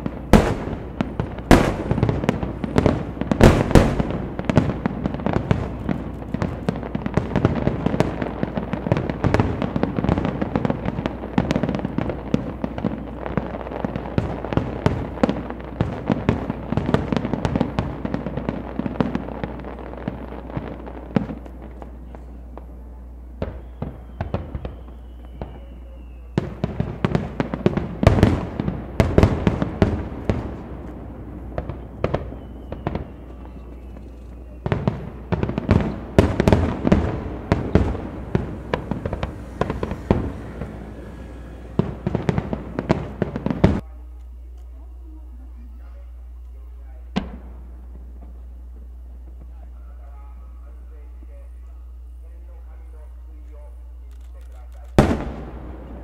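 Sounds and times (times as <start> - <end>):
fireworks bursting with crackling bangs: 0.0 - 50.2, 52.6 - 56.0
faint falling whistle: 23.4 - 26.6, 31.7 - 34.9.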